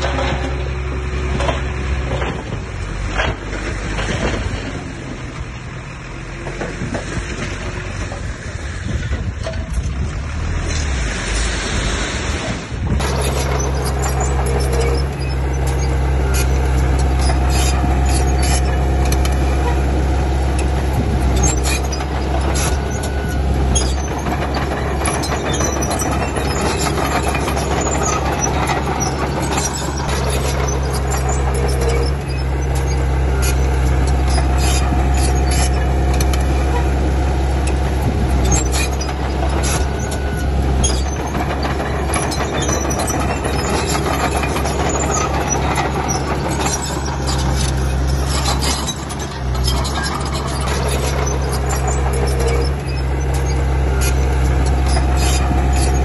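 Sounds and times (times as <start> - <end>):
bulldozer diesel engine: 0.0 - 56.0
track clanks and rattles: 0.0 - 56.0.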